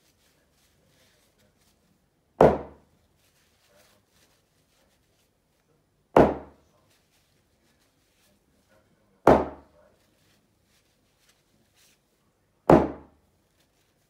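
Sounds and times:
hammer thudding on board: 0:02.4 - 0:02.8, 0:06.2 - 0:06.6, 0:09.2 - 0:09.7, 0:12.7 - 0:13.2.

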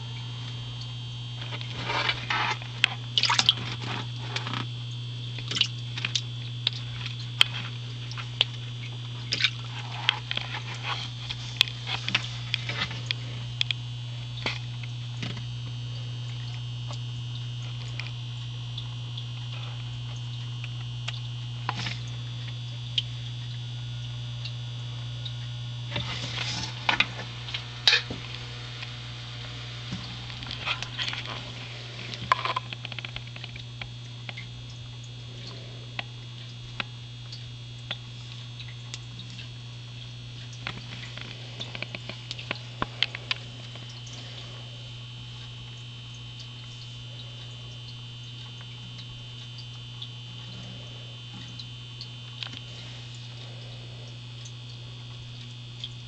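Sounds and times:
faint high whine: 0:00.0 - 0:56.0
low electrical hum: 0:00.0 - 0:56.0.

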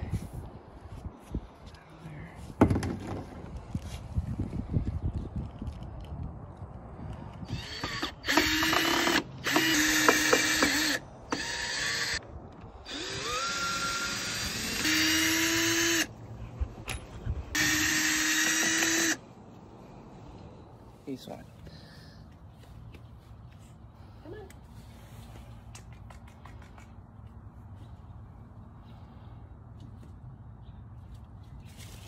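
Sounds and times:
cordless drill running: 0:07.5 - 0:12.2, 0:12.8 - 0:16.1, 0:17.5 - 0:19.2.

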